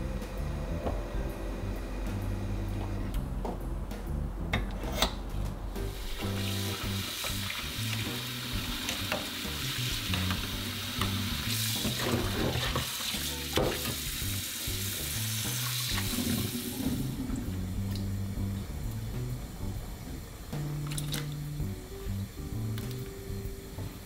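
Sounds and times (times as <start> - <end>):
soft background music: 0.0 - 24.0
tap water running into saucepan: 6.0 - 18.1.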